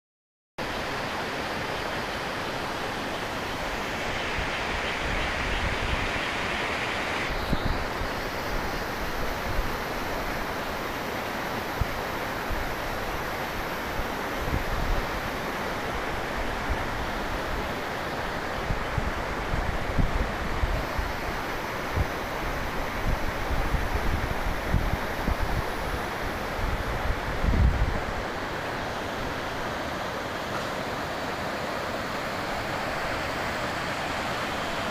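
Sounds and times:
waterfall rushing roar: 0.6s - 34.9s
wind buffeting microphone: 18.6s - 28.3s.

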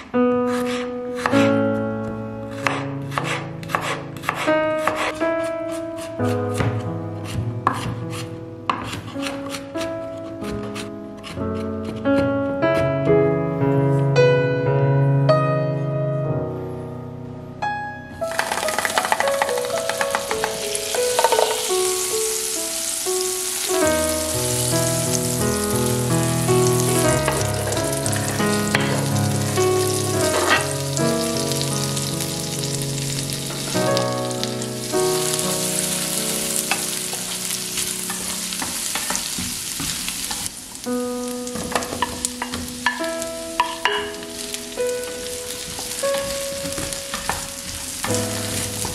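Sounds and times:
butter and garlic sizzling in pan: 0.0s - 1.4s, 2.6s - 5.2s, 6.0s - 9.6s, 18.2s - 48.9s
piano music: 0.0s - 48.9s.

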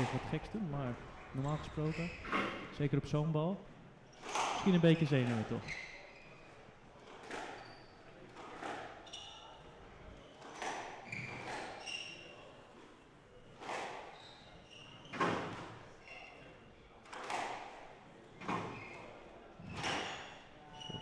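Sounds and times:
shoes squeaking on wooden floor: 0.0s - 2.8s, 4.1s - 12.4s, 13.6s - 16.4s, 18.3s - 21.0s.

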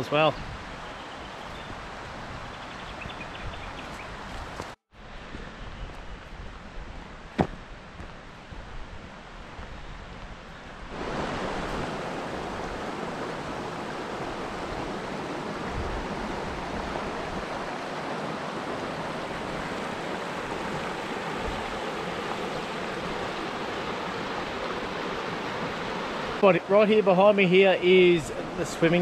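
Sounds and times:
river rushing over rocks: 10.9s - 29.0s.

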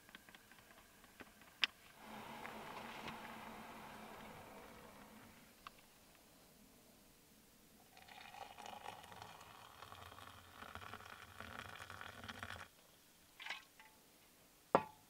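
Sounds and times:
water poured into mug: 7.9s - 12.7s.

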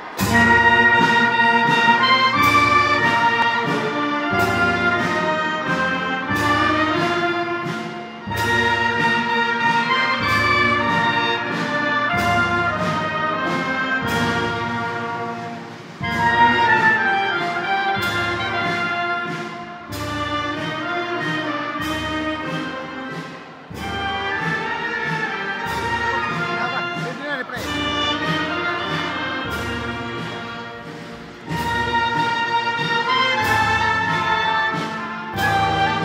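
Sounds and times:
drum beats: 0.0s - 36.0s
wind band playing a hymn: 0.0s - 36.0s.

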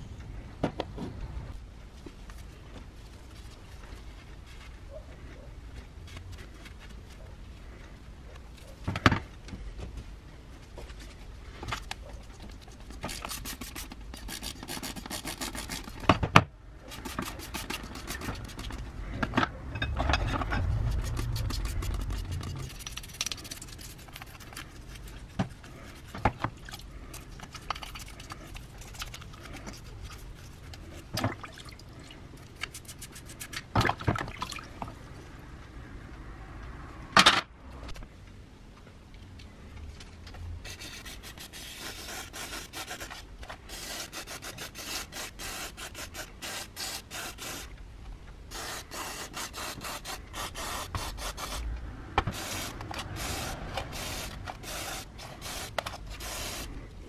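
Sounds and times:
cloth and brush scrubbing: 16.8s - 18.9s, 20.6s - 31.1s, 40.7s - 47.7s.

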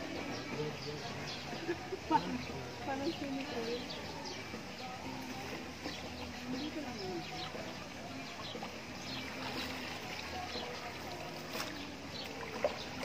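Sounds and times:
water trickling and lapping: 0.0s - 13.0s.

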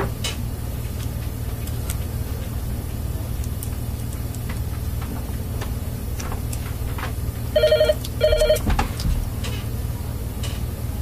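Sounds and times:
telephone ringing: 7.6s - 8.6s.

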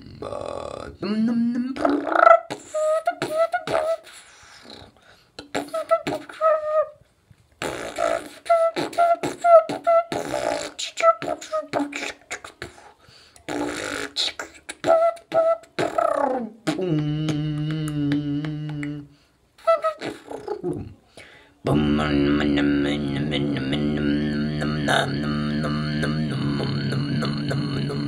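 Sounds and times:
person beatboxing: 0.0s - 6.7s, 7.6s - 21.0s, 21.6s - 28.0s
low buzzing vocal note: 16.6s - 19.1s, 21.6s - 28.0s.

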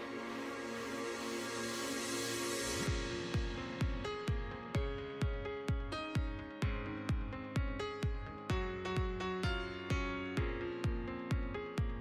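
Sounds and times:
steady kick drum: 2.8s - 12.0s.

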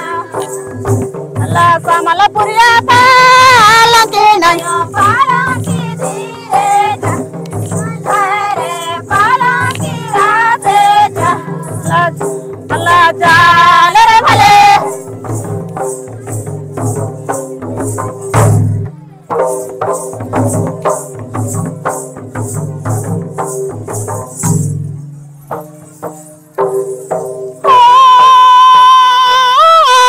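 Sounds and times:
voices singing folk song: 0.0s - 15.3s, 27.6s - 30.0s
barrel drums playing: 0.0s - 28.2s
jingling beat: 0.0s - 29.0s.

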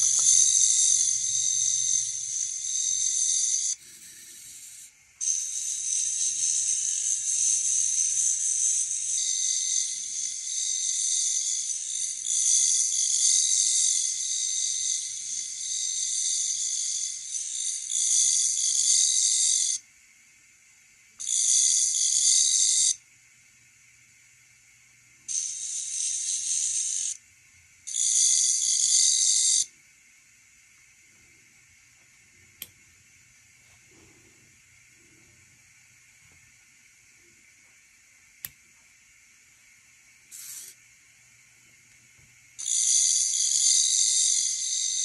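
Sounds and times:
electronic buzzing whine: 0.0s - 19.9s, 21.2s - 23.0s, 25.2s - 27.2s, 27.8s - 29.8s, 40.0s - 41.8s, 42.5s - 45.0s.

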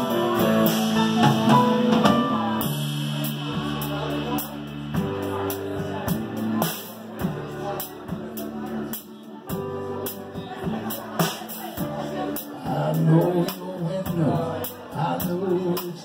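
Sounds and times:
drum and cymbal hits: 0.0s - 16.0s
rock band playing: 0.0s - 16.0s.

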